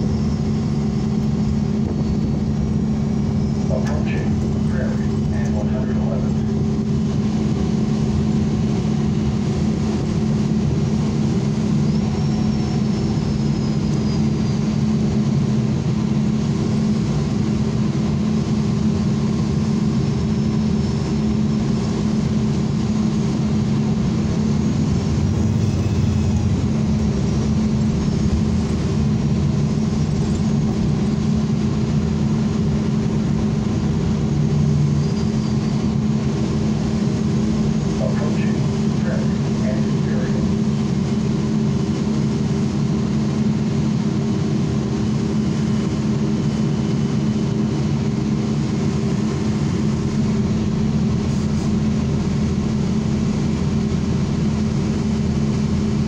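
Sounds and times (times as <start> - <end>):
road noise: 0.0 - 14.0, 21.9 - 42.8
bus engine drone: 0.0 - 56.0
faint high squeals: 34.8 - 35.9.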